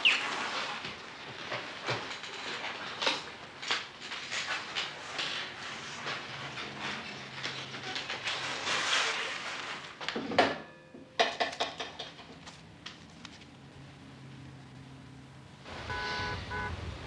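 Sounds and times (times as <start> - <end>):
wheelchair rolling over hard floor: 0.1 - 10.4
clicks and rattles of handled things: 0.5 - 8.9, 11.2 - 13.5
rustling: 3.7 - 10.1.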